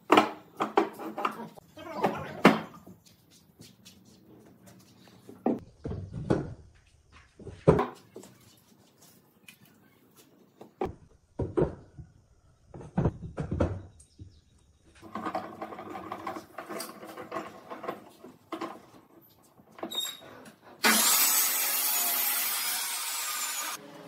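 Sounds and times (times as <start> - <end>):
boards clunking on a workbench: 0.0 - 1.4, 2.0 - 2.8, 12.8 - 13.9.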